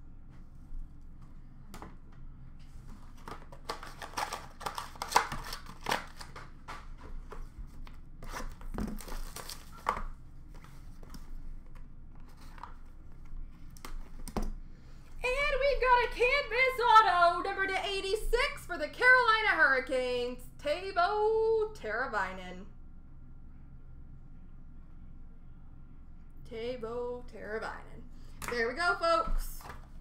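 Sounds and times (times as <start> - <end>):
packaging crinkling and tearing: 3.0 - 12.8.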